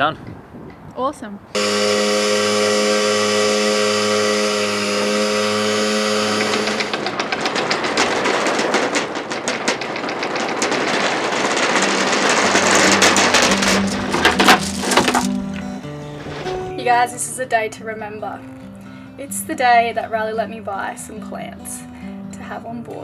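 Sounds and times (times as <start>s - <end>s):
anchor windlass motor whining: 1.5s - 17.2s
anchor chain clattering: 5.6s - 16.8s.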